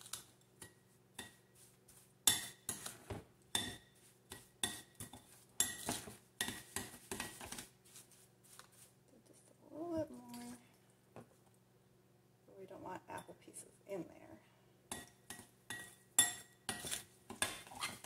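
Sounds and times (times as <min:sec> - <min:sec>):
fork clinking and scraping glass bowl: 0:02.3 - 0:03.0, 0:03.6 - 0:07.6, 0:14.9 - 0:18.0.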